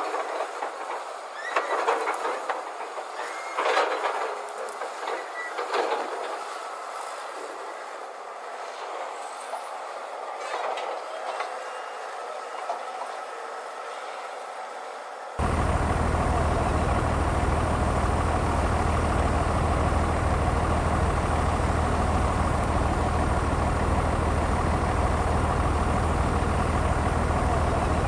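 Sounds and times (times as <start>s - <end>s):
steel truck body clanking and squeaking: 0.7s - 6.3s
truck engine running: 15.4s - 28.0s.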